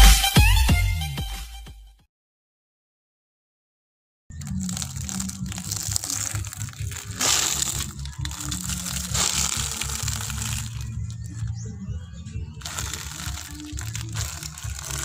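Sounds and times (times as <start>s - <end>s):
motorcycle rolling: 4.3s - 15.0s
snacks in plastic bags crunching: 4.4s - 11.5s, 12.6s - 15.0s.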